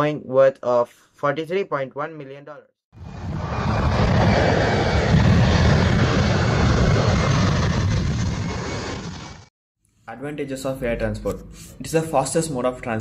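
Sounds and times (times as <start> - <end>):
airplane engine roar: 3.0 - 9.5.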